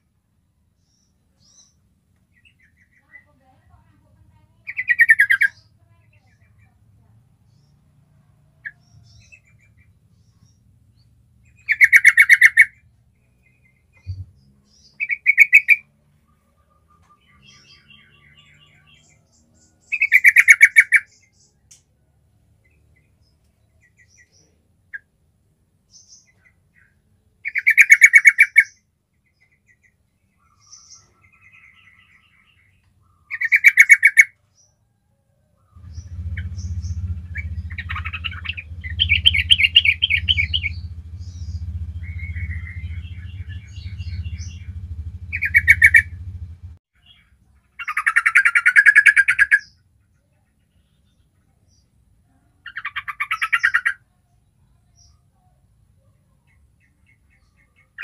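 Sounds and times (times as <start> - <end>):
bulbul chattering calls: 2.4 - 6.8, 11.4 - 21.5, 25.9 - 28.8, 29.6 - 34.4, 35.7 - 49.8, 52.6 - 54.1
steady low hum: 35.8 - 46.8.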